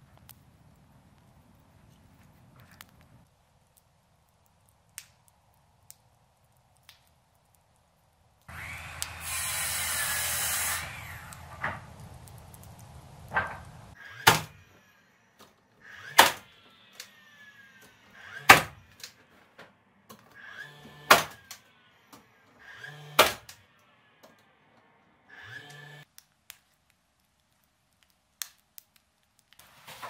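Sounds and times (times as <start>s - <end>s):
nail gun motor whir: 8.5s - 11.8s, 15.8s - 19.2s, 20.4s - 23.6s, 25.3s - 26.1s
nail gun firing snap: 16.1s - 16.5s, 18.4s - 19.1s, 21.0s - 21.6s, 23.1s - 23.6s.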